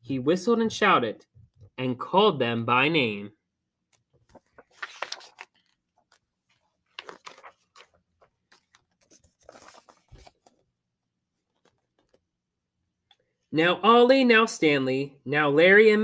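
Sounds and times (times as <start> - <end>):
paper pages rustling: 3.9 - 10.7, 11.4 - 12.2.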